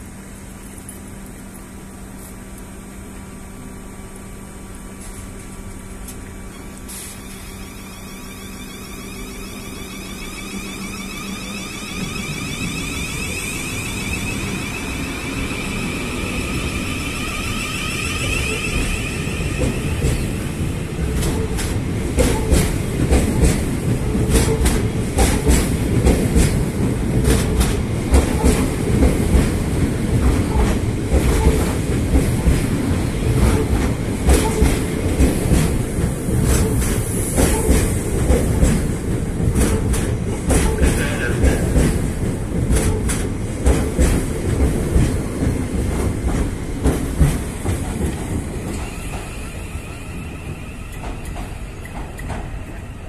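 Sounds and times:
traction motors whining: 5.0s - 22.6s, 47.6s - 53.0s
train wheels clicking over rail joints: 11.6s - 53.0s.

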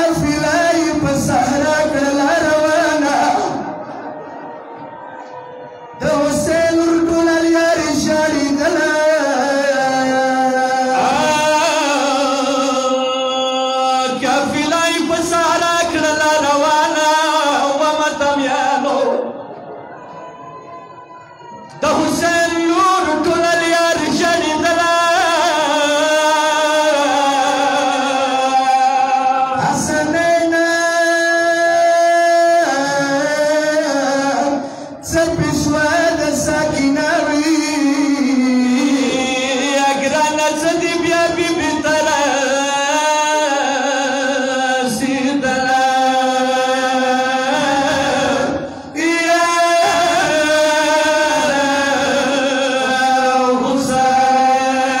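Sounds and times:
man singing a mourning lament: 0.0s - 4.0s, 6.0s - 19.4s, 21.7s - 55.0s.

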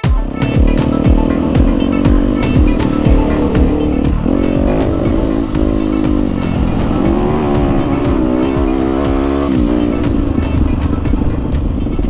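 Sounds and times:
dirt bike engine revving: 0.2s - 11.5s.

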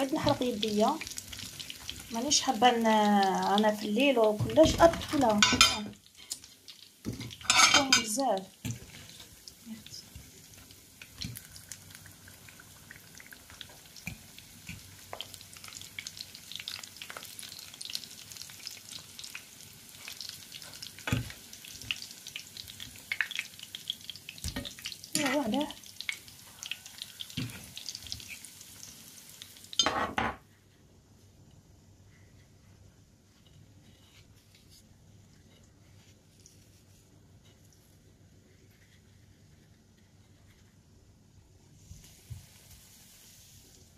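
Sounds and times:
food sizzling in hot oil: 0.0s - 29.9s, 41.8s - 43.9s.

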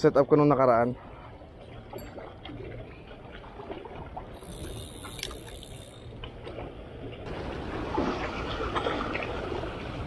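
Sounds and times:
small waves lapping among rocks: 1.6s - 10.0s
faint clicks: 4.4s - 6.6s.

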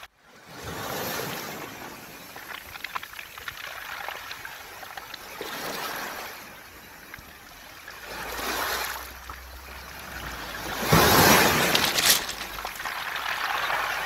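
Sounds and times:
waves washing over pebbles: 0.4s - 14.0s.

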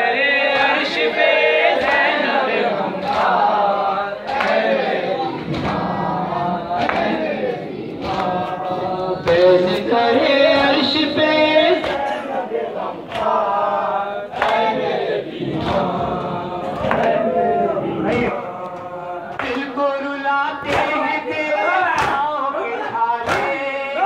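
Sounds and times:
group of men chanting: 0.0s - 24.0s
chest-beating slaps: 5.4s - 7.2s
man singing a lament into microphone: 8.3s - 13.1s, 17.8s - 24.0s.

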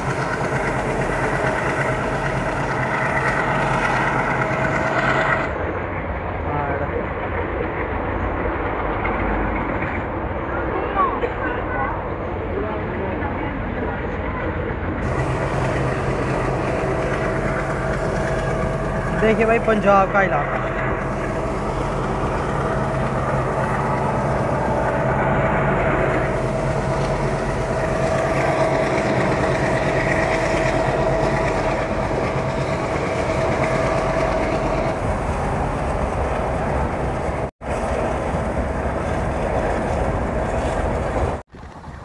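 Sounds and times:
steady train whine: 0.0s - 42.0s
train wheels on rails: 0.0s - 42.0s
rushing air: 14.9s - 42.0s.

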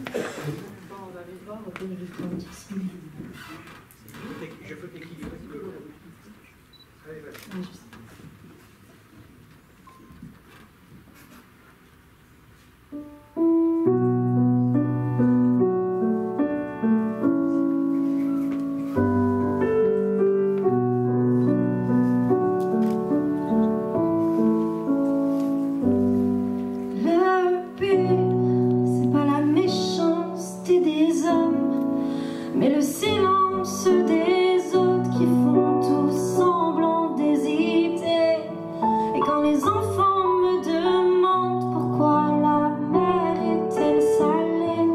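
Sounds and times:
piano chords: 12.9s - 44.9s
woman singing into a microphone: 26.9s - 44.9s.

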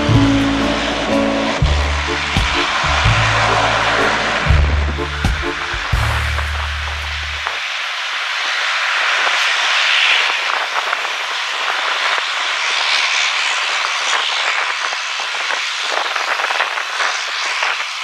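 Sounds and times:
turboprop engines running: 0.0s - 7.7s.

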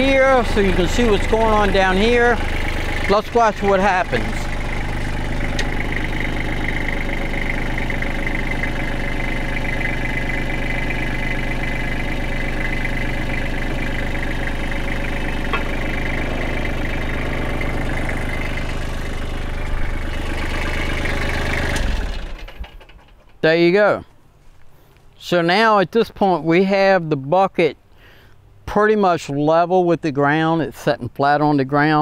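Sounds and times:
hydraulic hum: 0.0s - 22.9s
diesel tractor engine running: 0.0s - 24.6s.

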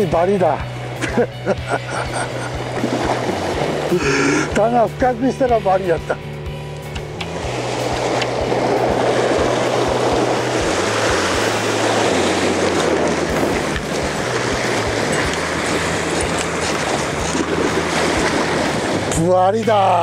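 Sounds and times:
surf breaking on rocks: 2.3s - 4.0s, 7.3s - 19.8s.

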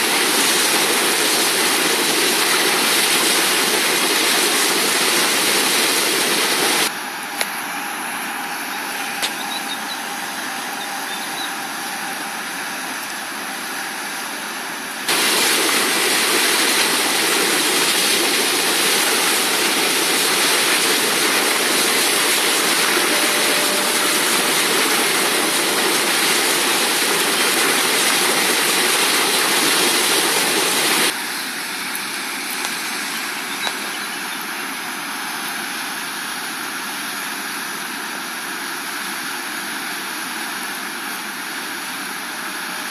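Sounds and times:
river rushing: 0.0s - 6.9s, 15.0s - 32.5s.

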